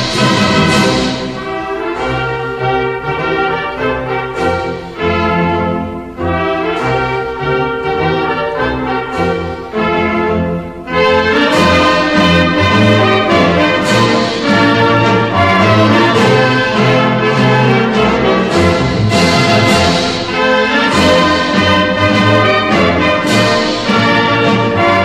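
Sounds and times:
brass band playing an anthem: 0.0s - 25.0s.

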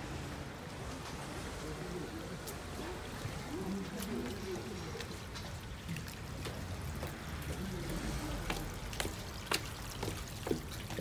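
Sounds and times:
water trickling down stone steps: 2.0s - 11.0s.

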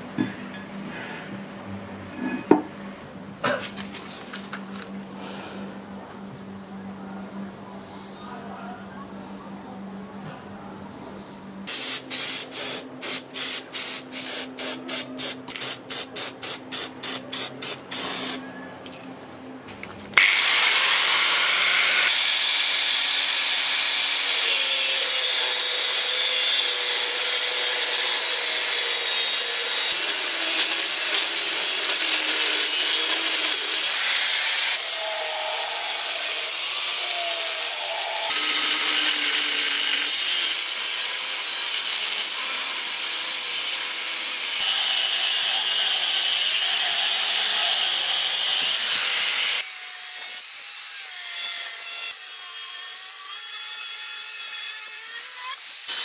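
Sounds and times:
power tool whining on steel: 20.2s - 56.0s.

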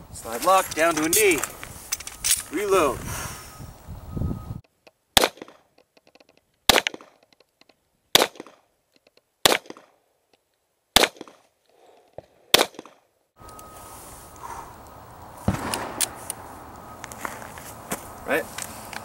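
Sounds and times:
handgun shots: 5.2s - 5.6s, 8.2s - 8.6s, 9.4s - 9.9s, 11.0s - 11.4s, 12.5s - 13.0s, 15.5s - 16.2s.

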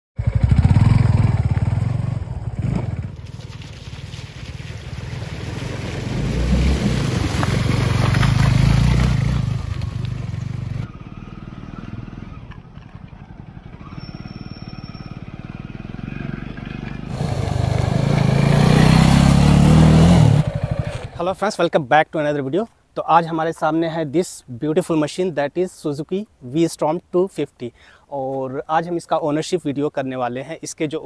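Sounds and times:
motorcycle engine running: 0.2s - 5.7s, 7.7s - 21.2s.

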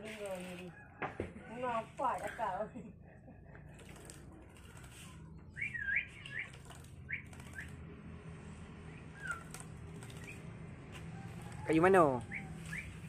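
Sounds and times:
bird chirps: 5.5s - 7.8s, 8.9s - 10.5s, 12.2s - 13.0s
bird wings splashing water: 6.3s - 7.8s, 9.2s - 10.4s.

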